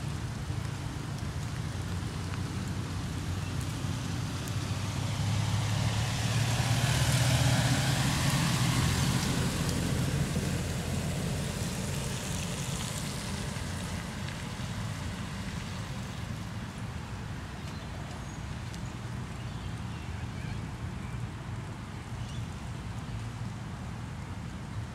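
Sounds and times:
tyre hiss on wet road: 0:00.0 - 0:24.9
truck engine passing: 0:04.7 - 0:13.5.

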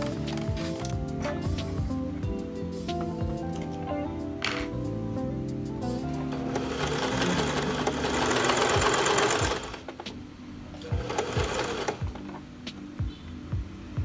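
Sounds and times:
electric sewing machine stitching: 0:06.3 - 0:09.9, 0:10.8 - 0:12.0.

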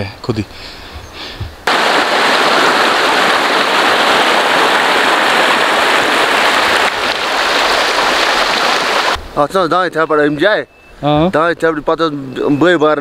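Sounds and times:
stream rushing over rocks: 0:01.7 - 0:09.2.

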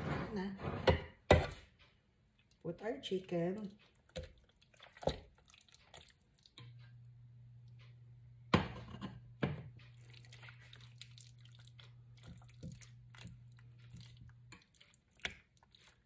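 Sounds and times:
low steady hum: 0:01.8 - 0:15.8
wet squelching and crackling: 0:03.5 - 0:06.6, 0:09.9 - 0:16.0
knocks against a pot: 0:08.5 - 0:09.8.

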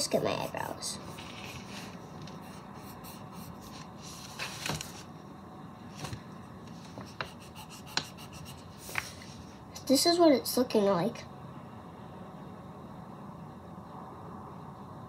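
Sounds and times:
pencil sketching on paper: 0:00.0 - 0:03.9, 0:07.0 - 0:08.8.

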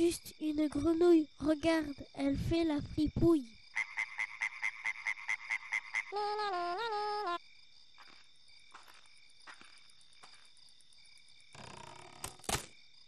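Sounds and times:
crickets at night: 0:00.0 - 0:13.0
frog croaking: 0:03.6 - 0:06.2.

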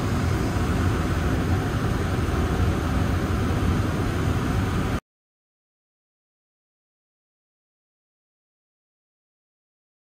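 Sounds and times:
gas stove hissing: 0:00.0 - 0:05.0.

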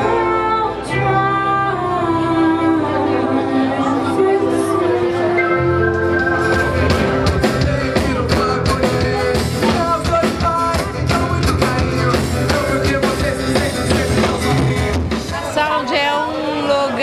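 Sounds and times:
bass line: 0:00.0 - 0:15.4
person singing: 0:00.0 - 0:15.5
acoustic guitar: 0:00.0 - 0:16.1
drum-kit beat: 0:05.5 - 0:15.6.

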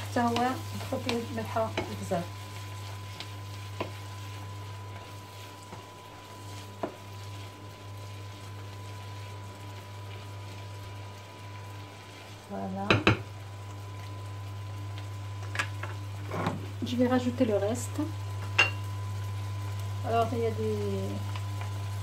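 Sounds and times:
wooden spoon stirring: 0:00.0 - 0:12.4
seafood sizzling in a frying pan: 0:00.0 - 0:22.0.

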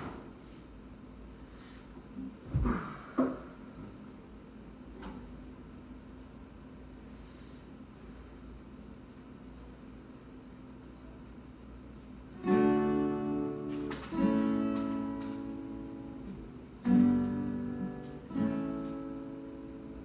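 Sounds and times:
acoustic guitar chords strummed: 0:12.3 - 0:20.0.

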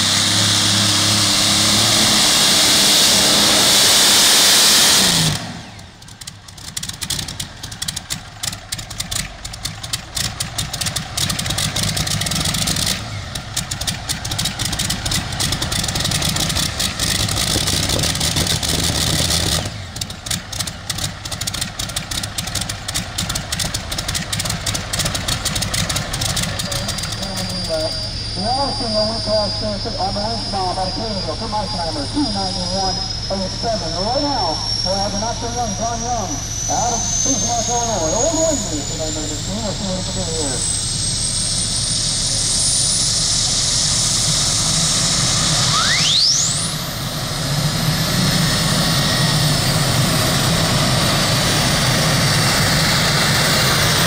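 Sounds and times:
tractor engine at full throttle: 0:00.0 - 0:54.0
tractor engine idling lumpily: 0:05.8 - 0:42.5.

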